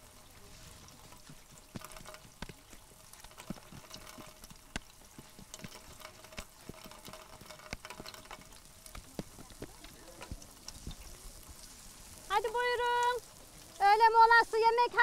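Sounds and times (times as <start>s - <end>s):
faint crackling: 0.0s - 15.0s
rolling pins tapping on wooden boards: 1.6s - 10.4s.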